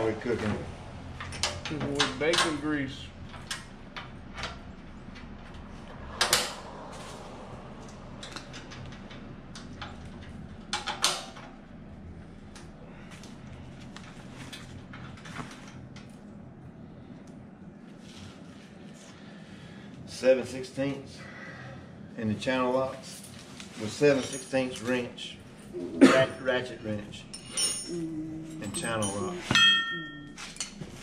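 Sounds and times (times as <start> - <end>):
metal parts and tools clinking: 23.1 - 25.1, 27.2 - 30.9.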